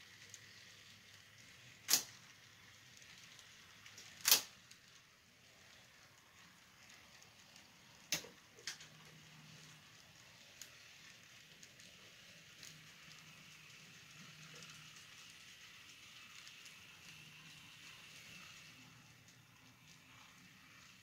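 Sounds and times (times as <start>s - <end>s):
faint steady hiss: 0.0s - 21.0s
model train cars rolling: 0.0s - 21.0s
wheel clicks: 1.8s - 2.3s.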